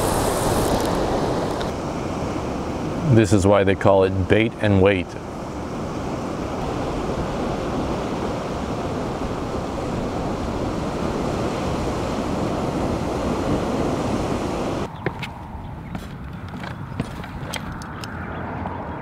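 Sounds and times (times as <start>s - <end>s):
wind on microphone: 0.0s - 3.2s, 5.0s - 19.0s
ocean surf against rocks: 0.0s - 15.2s.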